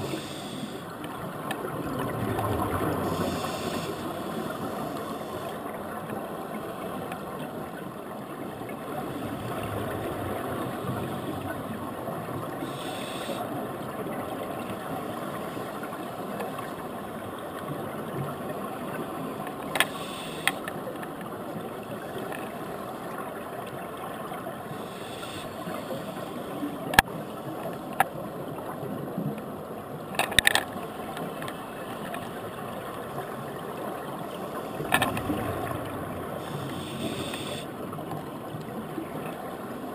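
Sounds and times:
underwater rushing hiss: 0.0 - 0.9, 2.8 - 5.6, 12.6 - 13.5, 19.8 - 20.6, 24.7 - 26.7, 36.3 - 37.7.

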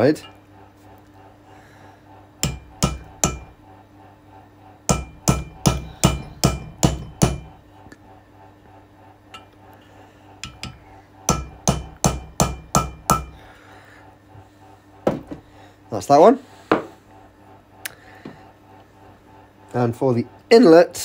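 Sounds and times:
hammer tapping metal tool: 2.4 - 3.6, 4.9 - 7.6, 10.4 - 13.4.

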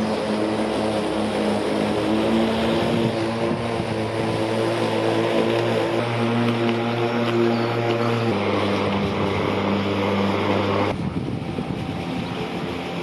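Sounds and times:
electric lawn mower whirring: 0.0 - 13.0.

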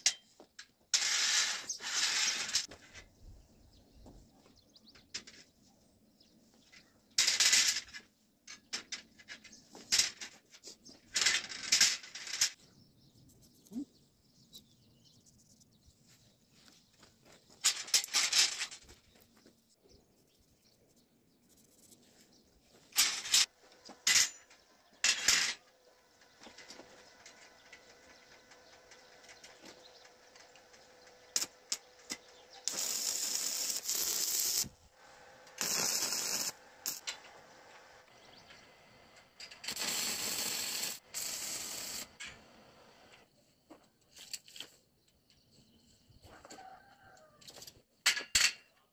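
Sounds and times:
arc welding crackle: 27.4 - 37.2, 39.6 - 42.2.

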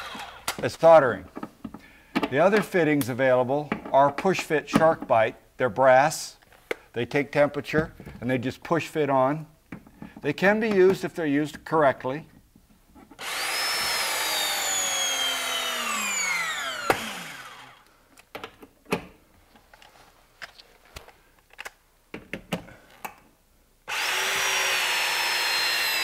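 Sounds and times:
press tool motor whining: 0.0 - 0.6, 13.2 - 17.8, 23.9 - 26.0.

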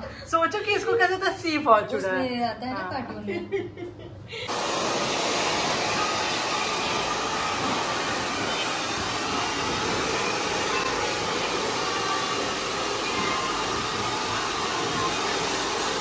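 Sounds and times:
hair dryer running: 4.5 - 16.0.

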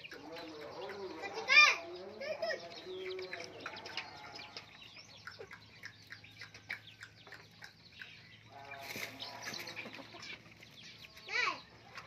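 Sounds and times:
chicks cheeping: 0.0 - 12.0.

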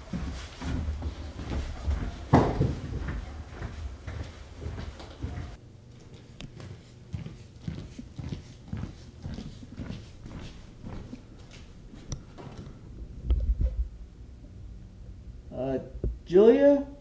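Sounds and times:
footsteps on hard floor: 0.0 - 12.7.

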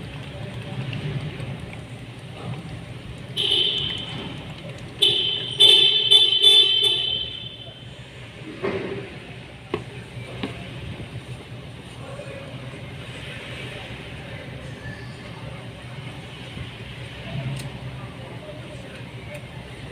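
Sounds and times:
horn honking: 3.4 - 4.4, 5.0 - 8.0.

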